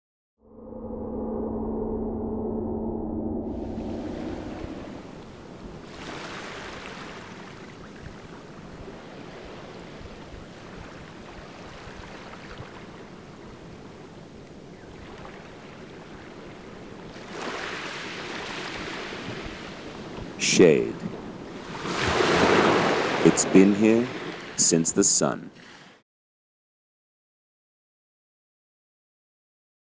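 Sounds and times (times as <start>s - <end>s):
small waves washing onto shore: 3.9s - 26.0s.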